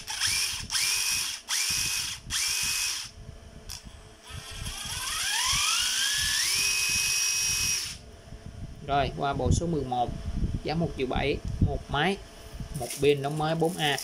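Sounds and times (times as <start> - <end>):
cordless impact driver spinning: 0.0 - 3.1, 3.7 - 8.0.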